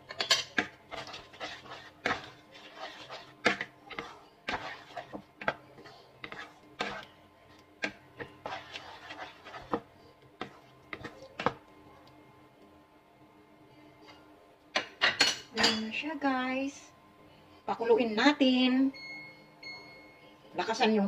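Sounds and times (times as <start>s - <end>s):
wooden spatula scraping a pan: 0.0s - 7.2s, 7.8s - 11.6s
faint steady hum: 0.0s - 21.0s.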